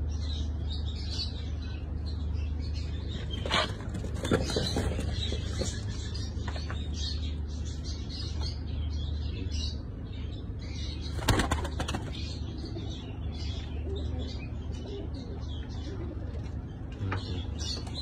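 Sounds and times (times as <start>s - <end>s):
steady low hum: 0.0s - 18.0s
pigeons cooing: 11.0s - 18.0s
wings flapping: 11.1s - 12.2s.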